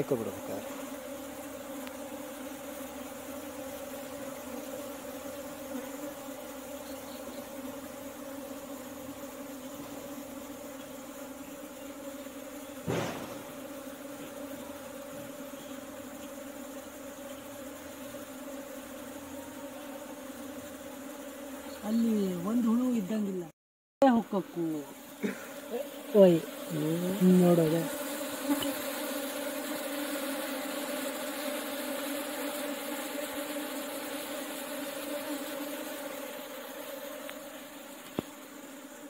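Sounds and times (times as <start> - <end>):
honeybee colony buzzing: 0.0 - 39.0
sharp knock: 12.8 - 13.6.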